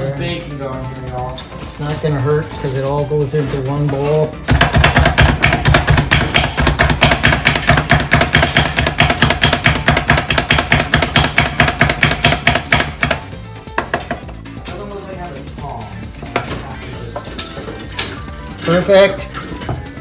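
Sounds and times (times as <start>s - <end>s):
food chopper chopping on wooden board: 4.5s - 13.2s.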